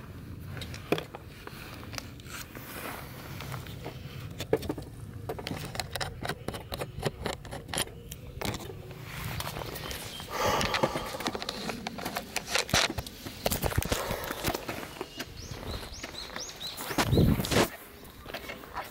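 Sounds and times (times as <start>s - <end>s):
low wind rumble on microphone: 8.3s - 17.7s.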